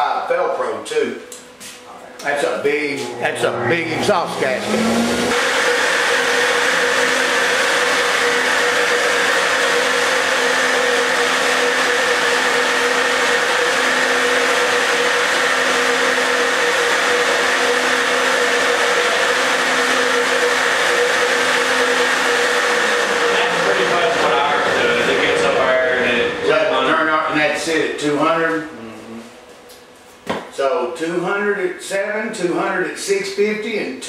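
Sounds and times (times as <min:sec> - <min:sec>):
flowbench motors whirring: 0:02.2 - 0:26.8.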